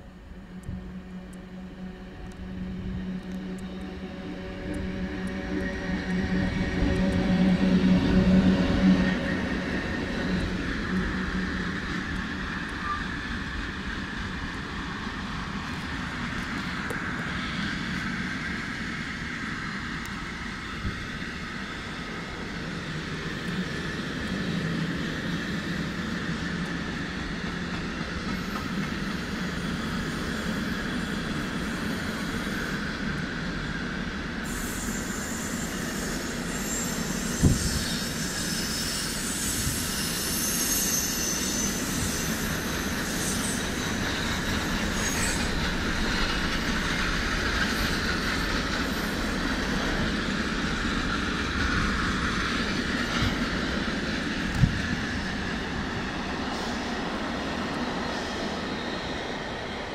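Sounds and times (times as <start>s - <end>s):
electric locomotive humming: 0.0s - 59.9s
train wheels rumbling on rails: 0.0s - 59.9s
wheels squealing: 34.5s - 53.8s.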